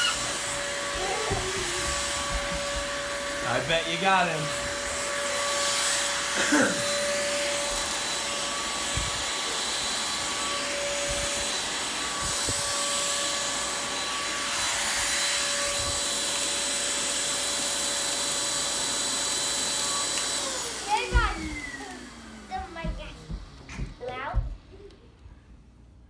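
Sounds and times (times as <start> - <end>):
handheld vacuum whine: 0.0 - 25.3
low thumps on carpet: 0.4 - 3.4, 21.1 - 21.5, 22.5 - 25.4.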